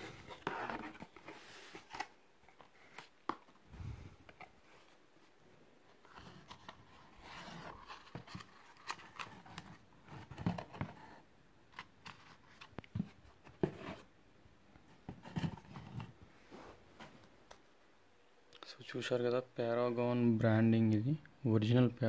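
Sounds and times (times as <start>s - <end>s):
rustling and scraping: 0.0s - 14.1s, 14.8s - 17.3s.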